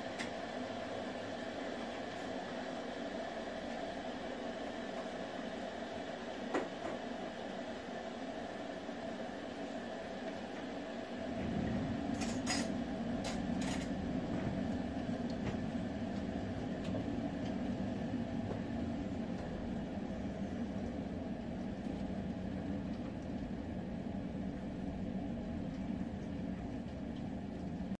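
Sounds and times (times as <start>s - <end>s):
low mechanical rumble: 11.0s - 27.9s.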